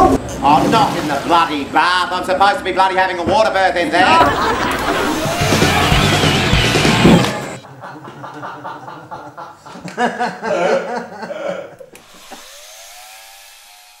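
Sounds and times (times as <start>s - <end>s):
faint voices and chuckling: 4.0s - 6.1s
rising electronic tone: 4.1s - 7.6s.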